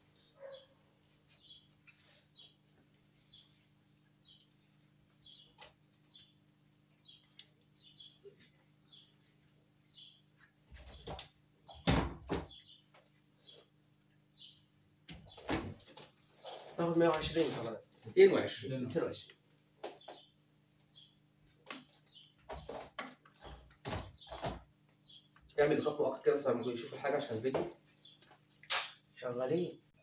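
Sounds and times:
low electrical hum: 0.0 - 30.0
small bird chirping: 1.3 - 2.6, 3.2 - 9.3, 9.9 - 10.3, 12.5 - 15.5, 19.9 - 22.8, 23.4 - 25.9.

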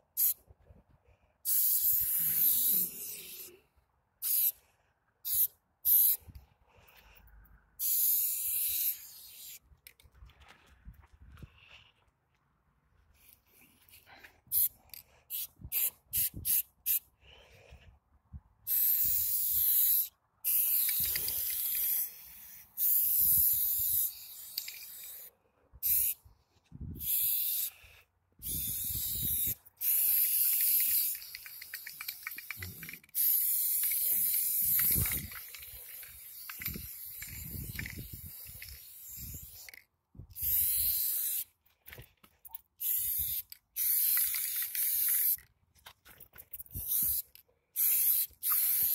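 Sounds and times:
spray paint can hissing: 0.2 - 0.4, 1.4 - 3.6, 4.2 - 4.6, 5.2 - 6.3, 7.8 - 9.6, 14.5 - 17.0, 18.7 - 26.2, 27.0 - 39.8, 40.4 - 41.5, 42.8 - 45.4, 46.7 - 48.9
spray can rattling when shaken: 1.5 - 3.5, 4.2 - 4.6, 7.8 - 10.0, 18.7 - 26.2, 27.0 - 27.7, 28.4 - 39.8, 40.4 - 41.5, 42.8 - 45.5, 46.5 - 48.9.

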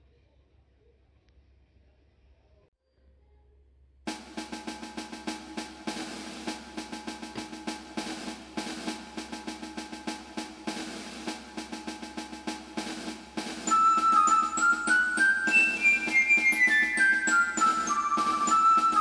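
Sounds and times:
held background music notes: 4.1 - 19.0
rapid drum roll: 4.1 - 19.0.

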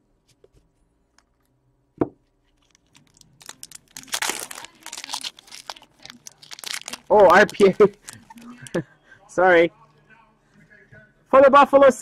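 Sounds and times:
foil wrapper tearing and crinkling: 2.5 - 8.4.

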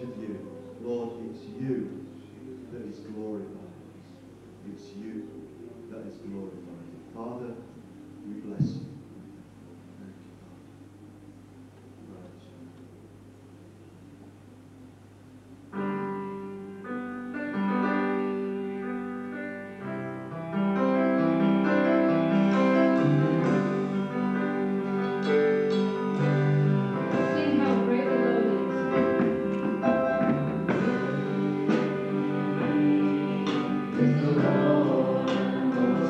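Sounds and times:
electric keyboard chords: 15.4 - 36.0
band playing: 19.9 - 36.0.

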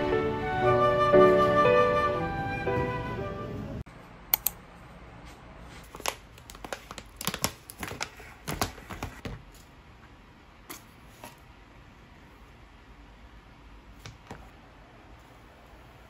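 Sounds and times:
paper crinkling and tearing: 5.8 - 9.1.

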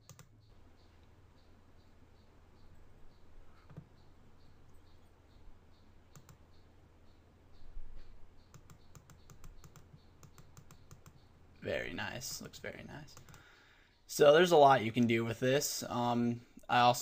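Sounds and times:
computer clicking: 0.0 - 0.5, 2.6 - 5.1, 5.7 - 6.7, 8.4 - 11.4, 12.4 - 13.5
low electrical hum: 0.0 - 17.0.

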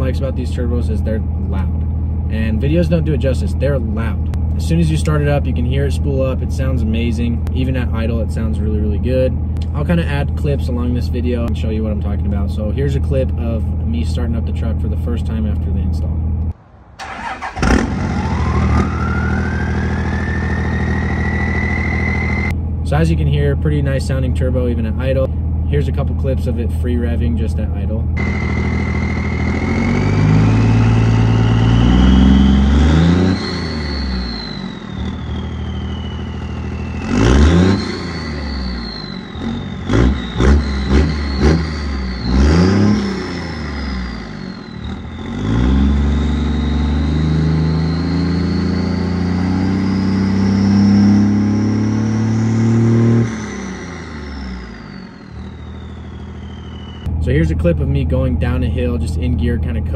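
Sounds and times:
diesel engine revving: 0.0 - 59.7
turbo whistle: 18.1 - 22.6, 28.2 - 57.2.

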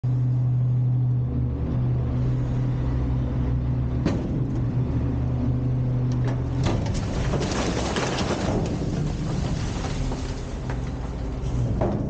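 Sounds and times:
garbage truck engine running: 0.0 - 12.0.

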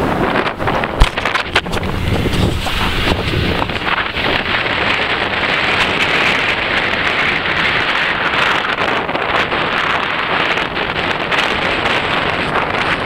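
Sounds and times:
tyres rushing on dirt and gravel: 0.0 - 13.0
wind on microphone: 0.0 - 13.0.

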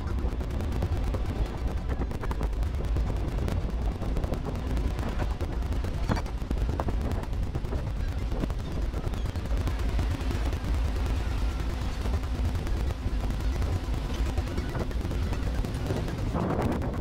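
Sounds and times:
heavy low rumble: 0.0 - 17.0.

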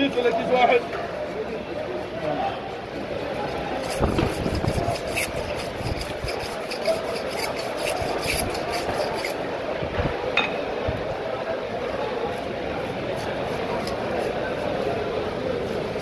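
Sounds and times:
knife scraping: 0.2 - 9.4, 12.7 - 16.0.

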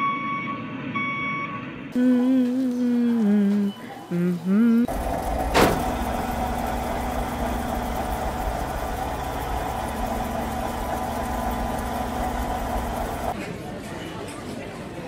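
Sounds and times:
truck engine idling: 4.9 - 13.4.

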